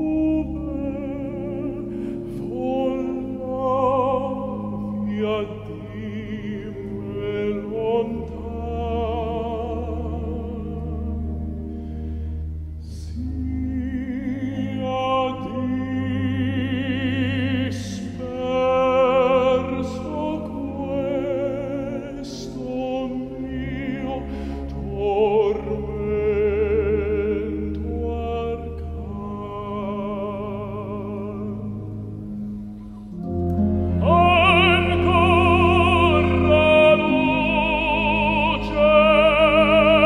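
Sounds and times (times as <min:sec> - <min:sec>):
chamber ensemble playing: 0:00.0 - 0:40.0
tenor singing operatically: 0:33.6 - 0:40.0.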